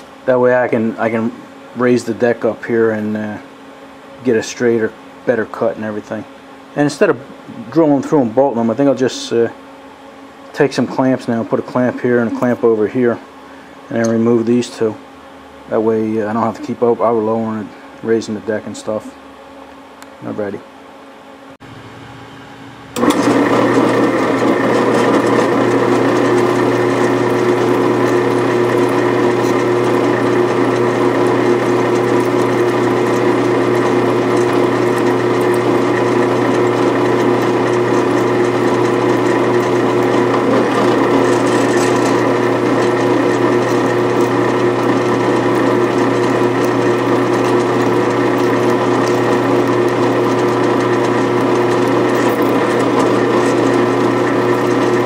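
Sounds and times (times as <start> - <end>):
drill press drilling metal: 23.0 - 55.0.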